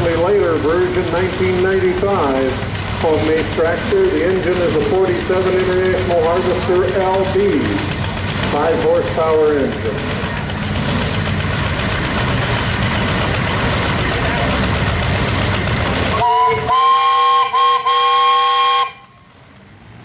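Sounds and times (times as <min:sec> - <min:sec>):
small engine running: 0:00.0 - 0:18.8
steam whistle chord: 0:16.1 - 0:19.1.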